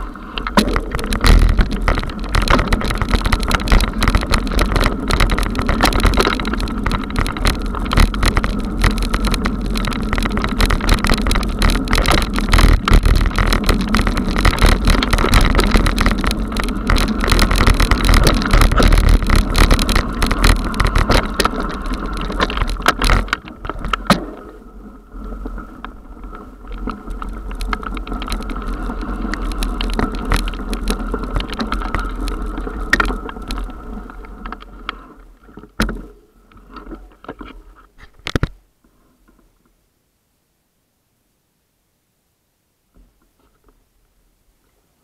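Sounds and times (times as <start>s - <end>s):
tyre rumble on dirt: 0.0s - 34.8s
bike rattling knocks: 0.4s - 24.5s.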